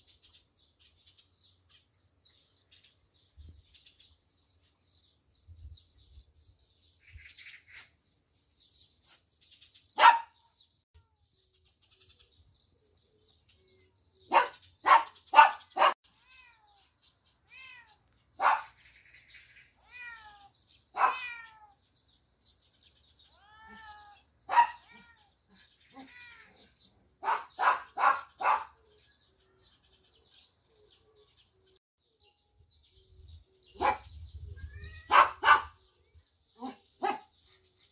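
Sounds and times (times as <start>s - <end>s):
loud animal cries: 19.8s - 21.8s, 23.3s - 26.8s.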